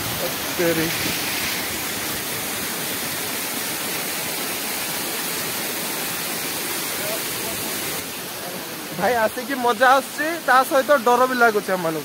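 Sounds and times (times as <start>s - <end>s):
waterfall rushing over rock: 0.0s - 12.0s.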